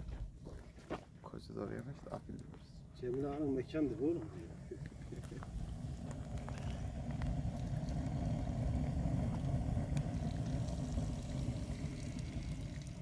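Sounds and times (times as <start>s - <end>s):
fire crackling: 1.6s - 13.0s
water simmering in teapot: 4.2s - 13.0s.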